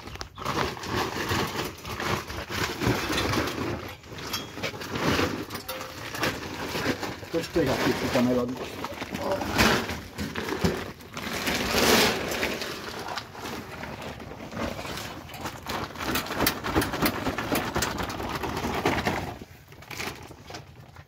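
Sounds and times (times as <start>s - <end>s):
plastic sack rustling: 0.0s - 21.0s
wet shreds pouring into wheelbarrow: 4.9s - 16.3s.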